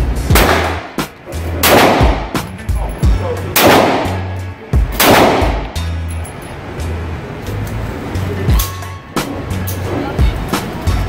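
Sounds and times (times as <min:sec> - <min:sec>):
background music: 0:00.0 - 0:11.0
echoing gunshots: 0:00.3 - 0:02.4, 0:03.5 - 0:04.3, 0:05.0 - 0:05.8.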